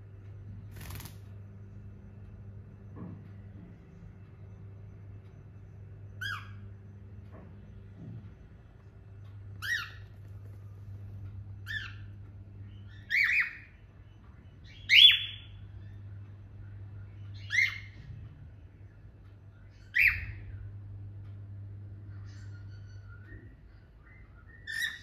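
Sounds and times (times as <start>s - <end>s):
steady low hum: 0.0s - 25.0s
cockatiel calls: 6.2s - 6.6s, 9.6s - 10.3s, 11.6s - 12.1s, 12.9s - 13.7s, 17.4s - 18.0s, 19.9s - 20.4s, 24.6s - 25.0s.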